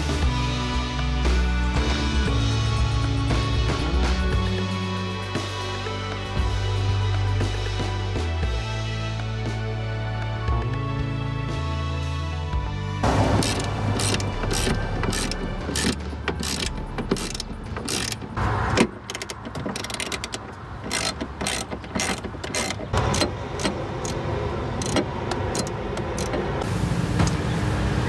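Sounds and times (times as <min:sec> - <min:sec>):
wrench ratcheting: 0:13.4 - 0:24.2, 0:24.8 - 0:26.4
metallic clicks and clinks: 0:19.0 - 0:24.2.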